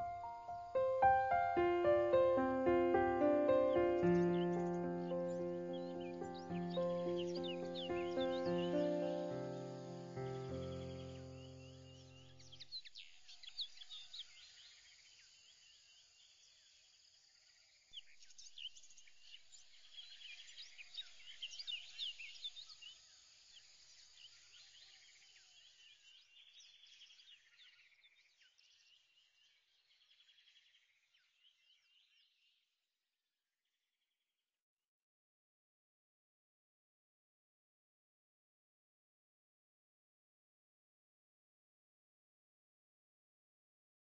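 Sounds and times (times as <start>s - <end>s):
small birds chirping and twittering: 0.0s - 32.7s.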